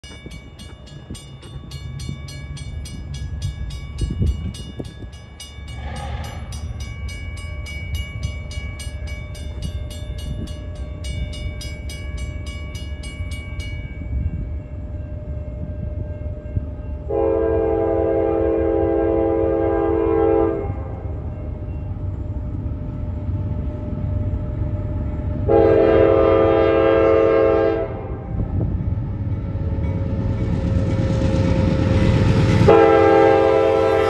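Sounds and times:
crossing warning bells ringing: 0:00.0 - 0:34.0
locomotive air horn: 0:17.1 - 0:21.0, 0:25.5 - 0:28.4, 0:32.6 - 0:34.0.

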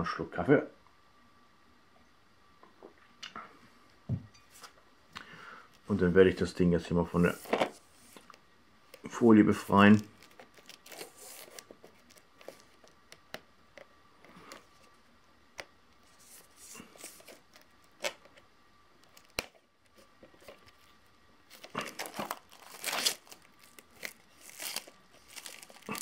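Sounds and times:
plastic film crinkling and tearing: 0:08.0 - 0:13.4, 0:16.0 - 0:18.4, 0:19.0 - 0:26.0
plastic film clicks and crackles: 0:09.8 - 0:14.8, 0:17.0 - 0:20.9, 0:21.5 - 0:26.0.

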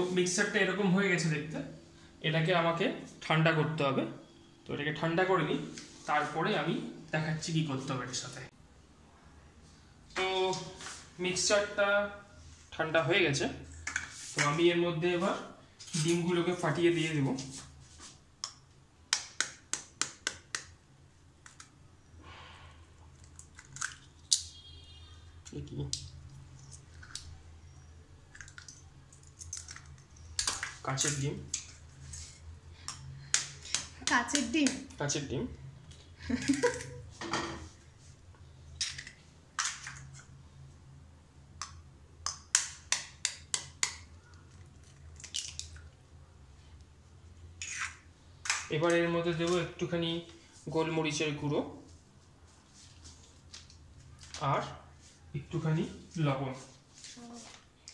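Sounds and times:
knife tapping eggshells: 0:18.4 - 0:20.8, 0:32.8 - 0:34.9, 0:41.6 - 0:44.1.

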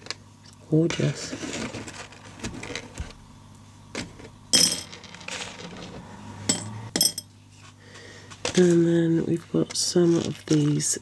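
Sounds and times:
glass beads clinking in jar: 0:06.5 - 0:07.3.

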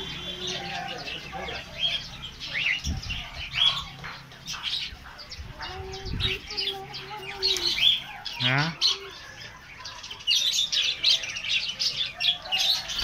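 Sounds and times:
budgerigars chirping and chattering: 0:00.0 - 0:13.0.

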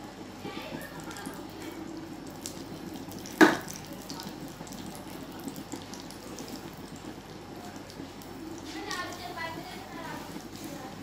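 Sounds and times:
okra sizzling in oil: 0:00.0 - 0:11.0.

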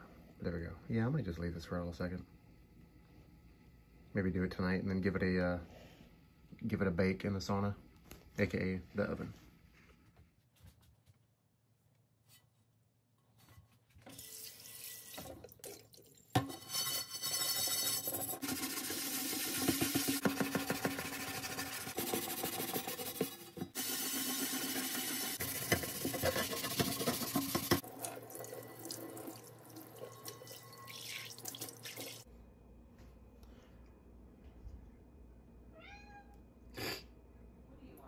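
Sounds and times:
tap water running into sink: 0:14.0 - 0:16.5, 0:17.4 - 0:32.2
steel wool scrubbing skillet: 0:16.4 - 0:27.9.

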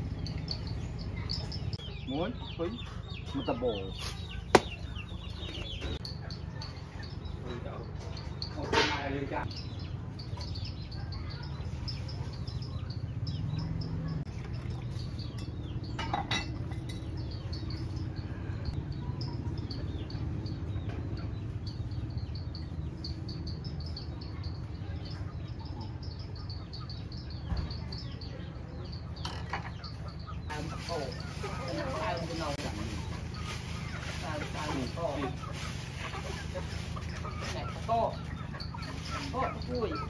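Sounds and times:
rapid high chirping: 0:00.0 - 0:14.3, 0:29.8 - 0:40.0.

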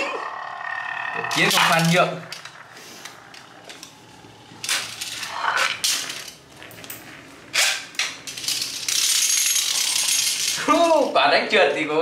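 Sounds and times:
spinning top whirring on tiles: 0:08.3 - 0:10.7.

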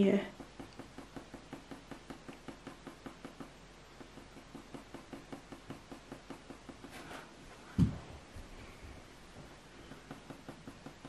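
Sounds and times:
pencil shading on paper: 0:00.3 - 0:07.4
dull thump: 0:07.7 - 0:08.2.

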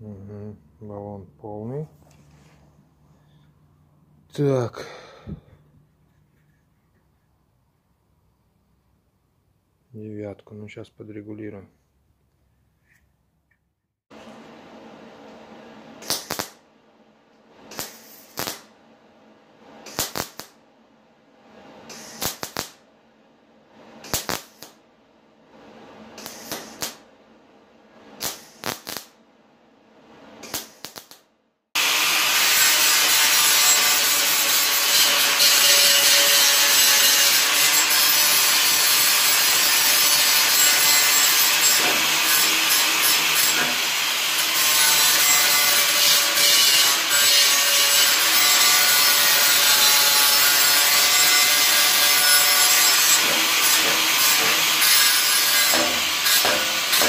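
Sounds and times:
welder crackling bursts: 0:16.0 - 0:16.6, 0:17.7 - 0:18.7, 0:19.9 - 0:20.6, 0:21.9 - 0:22.8, 0:24.0 - 0:24.8, 0:26.2 - 0:27.0, 0:28.2 - 0:29.1, 0:30.4 - 0:31.2, 0:31.8 - 0:57.0
angle grinder grinding metal: 0:31.8 - 0:57.0.

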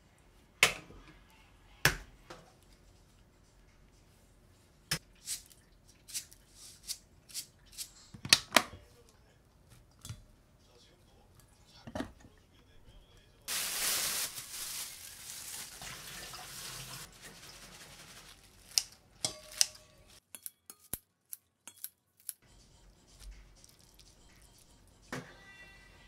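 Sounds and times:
rushing rustling noise: 0:13.5 - 0:15.8
scissors snipping lettuce: 0:18.6 - 0:22.4.

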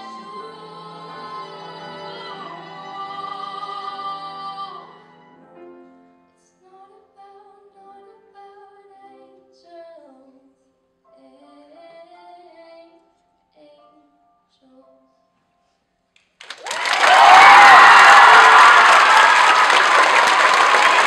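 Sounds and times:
woman singing: 0:00.0 - 0:05.0, 0:06.6 - 0:13.0
cello: 0:00.0 - 0:06.0
piano: 0:00.0 - 0:21.0.

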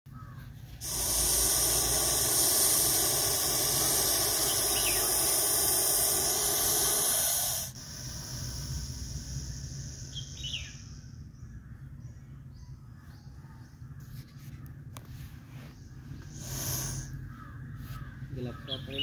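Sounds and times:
snake hissing: 0:00.7 - 0:11.1, 0:16.2 - 0:17.4.

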